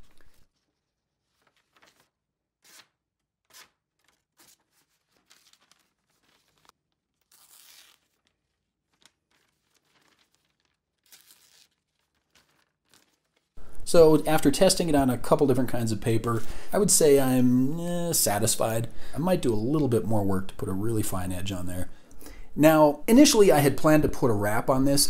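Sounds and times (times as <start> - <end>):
blade slicing through paper: 1.3 - 13.6.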